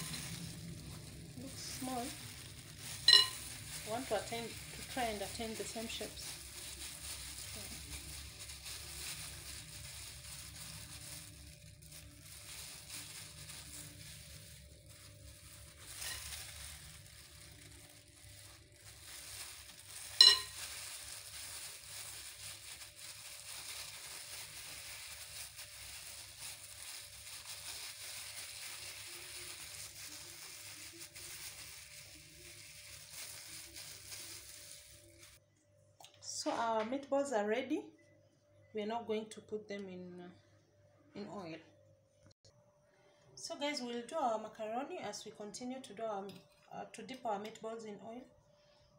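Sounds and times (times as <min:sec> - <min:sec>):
minced meat squishing: 0:00.0 - 0:35.4
plastic gloves crinkling: 0:00.0 - 0:35.4
low steady hum: 0:00.0 - 0:48.9.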